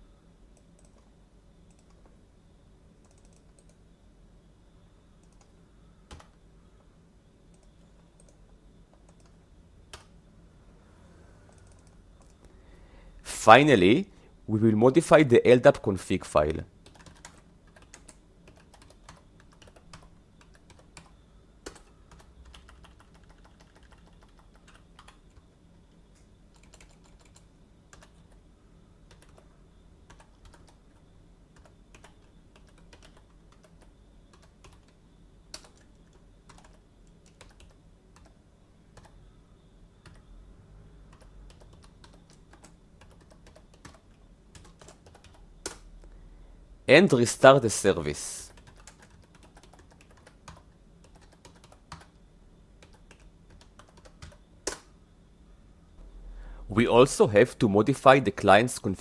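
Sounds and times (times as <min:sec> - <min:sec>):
keyboard typing: 0:00.6 - 0:01.1, 0:01.7 - 0:02.1, 0:03.0 - 0:03.8, 0:05.2 - 0:06.4, 0:07.5 - 0:10.1, 0:11.5 - 0:12.5, 0:16.8 - 0:25.5, 0:26.2 - 0:28.4, 0:29.1 - 0:39.2, 0:40.0 - 0:40.3, 0:41.1 - 0:45.8, 0:48.3 - 0:52.2, 0:52.8 - 0:54.9.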